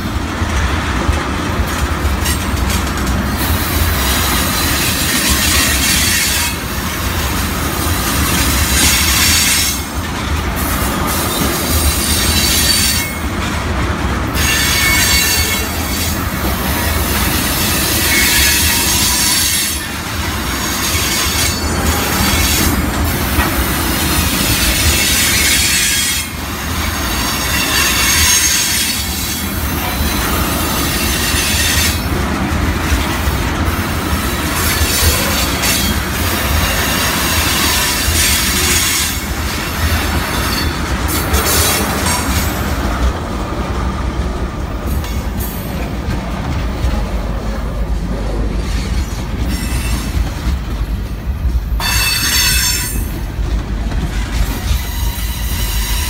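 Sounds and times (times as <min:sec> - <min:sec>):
train wheels rumbling on rails: 0:00.0 - 0:56.0.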